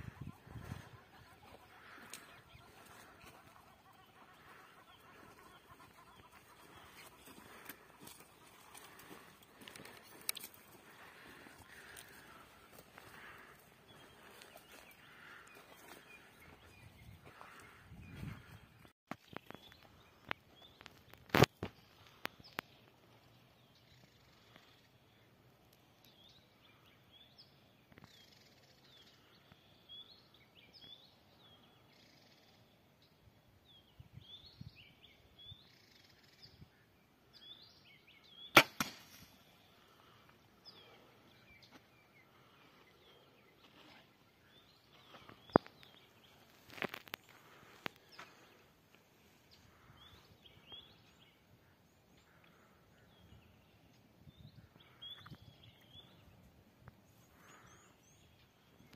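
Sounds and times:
bow string crack: 38.5 - 39.4.

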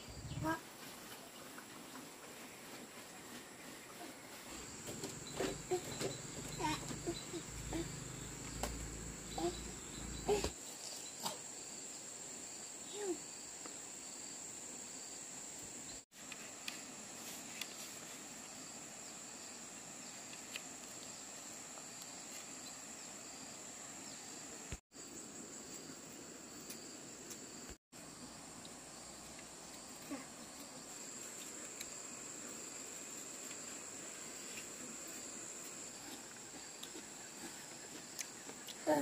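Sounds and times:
insect chorus drone: 4.6 - 17.0.

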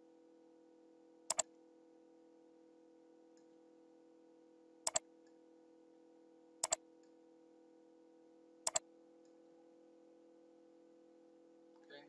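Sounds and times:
faint steady hum: 0.0 - 12.0
computer mouse clicks: 1.3 - 1.5, 6.6 - 7.2, 8.6 - 9.4.

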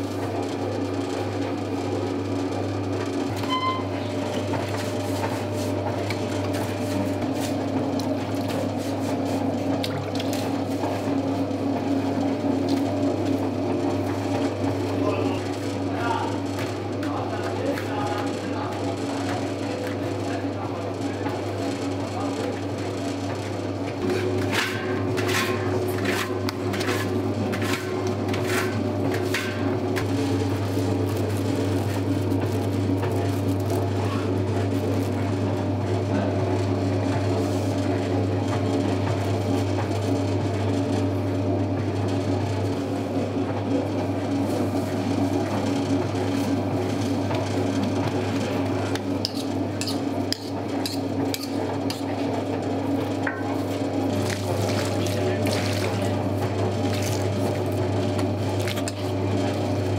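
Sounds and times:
dough mixer motor humming: 0.0 - 59.9
knocks and scrapes against bowl: 24.0 - 30.1, 48.9 - 52.2.

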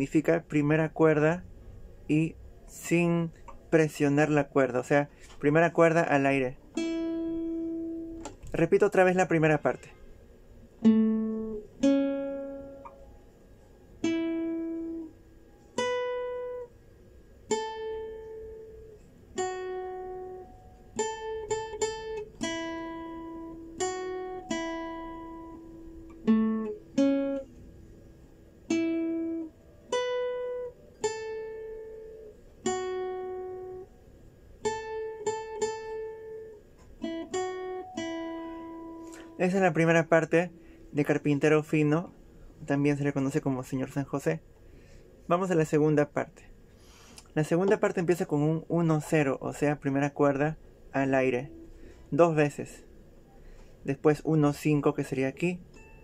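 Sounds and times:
classical guitar melody: 5.5 - 9.8, 10.7 - 16.8, 17.4 - 33.9, 34.6 - 41.5, 55.6 - 56.0.

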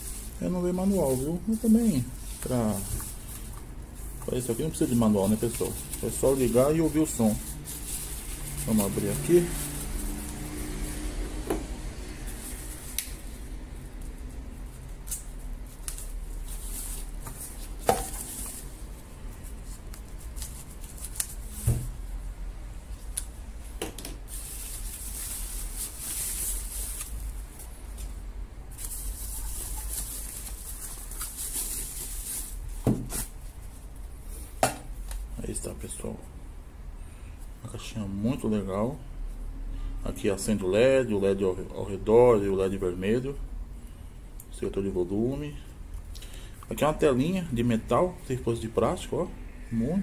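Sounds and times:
plastic bags crinkling: 0.0 - 11.0, 24.2 - 27.7, 28.7 - 33.4.

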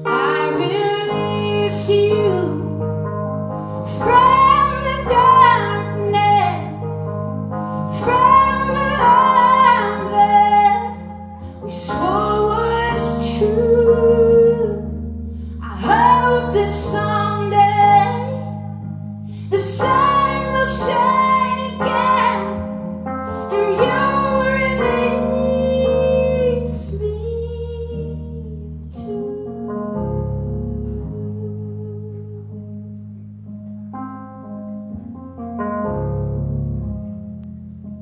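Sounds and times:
woman singing slow melody: 0.0 - 2.8, 3.8 - 7.1, 7.8 - 18.8, 19.4 - 22.6, 23.3 - 33.0
held keyboard chords: 0.0 - 38.0.

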